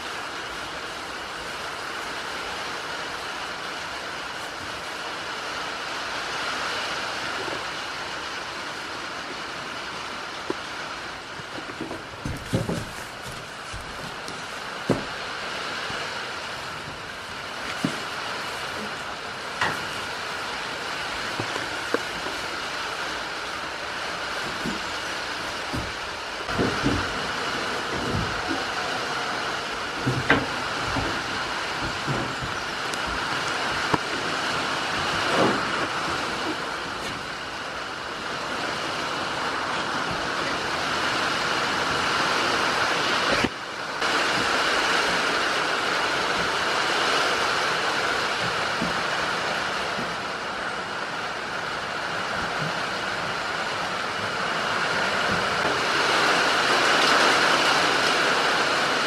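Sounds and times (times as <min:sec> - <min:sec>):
heavy rain on corrugated roof: 0:00.0 - 0:59.0
close knocks and bumps: 0:11.5 - 0:15.3, 0:24.4 - 0:28.8, 0:30.0 - 0:34.1.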